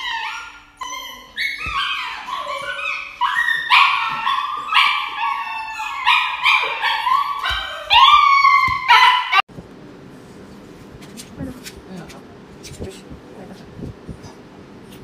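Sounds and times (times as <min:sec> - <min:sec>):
puppy yelping and crying: 0:00.0 - 0:09.5.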